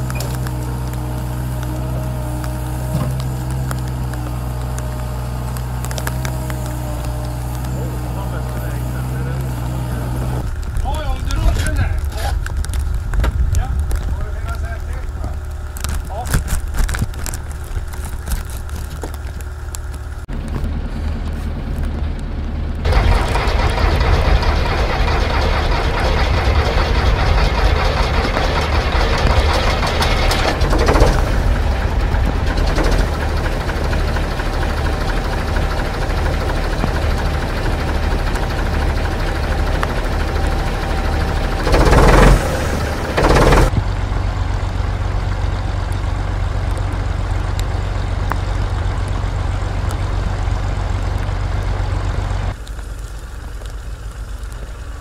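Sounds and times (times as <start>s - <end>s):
diesel engine running: 0.0s - 55.0s
loud bursts of noise: 22.8s - 44.2s.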